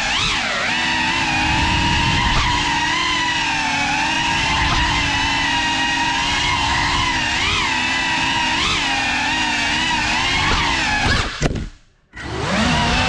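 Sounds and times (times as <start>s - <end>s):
drone propellers whining: 0.0s - 11.5s, 12.1s - 13.0s.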